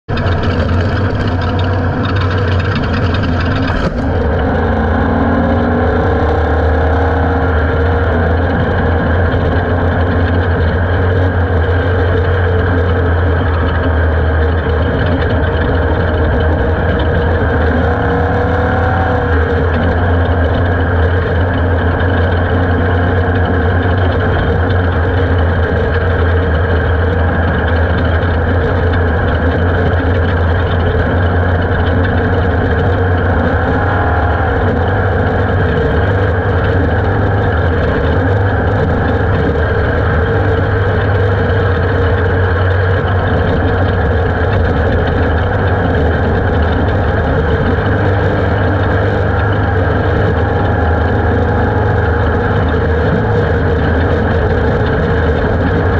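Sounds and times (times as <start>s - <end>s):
race car engine droning: 0.0s - 55.9s
rushing noise: 0.1s - 7.4s, 31.4s - 47.8s.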